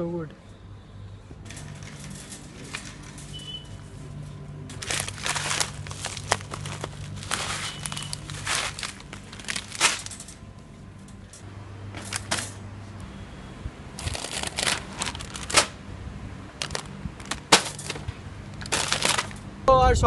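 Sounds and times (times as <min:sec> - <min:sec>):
low steady hum: 0:00.0 - 0:20.0
plastic packets crinkling: 0:01.5 - 0:03.9, 0:04.7 - 0:10.4, 0:12.0 - 0:12.6, 0:14.0 - 0:15.8, 0:16.6 - 0:19.4.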